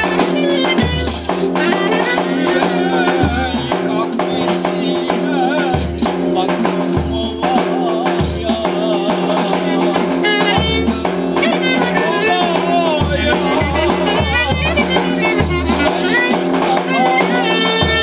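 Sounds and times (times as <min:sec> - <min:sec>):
clarinet ornamented melody: 0:00.0 - 0:03.2, 0:10.2 - 0:18.0.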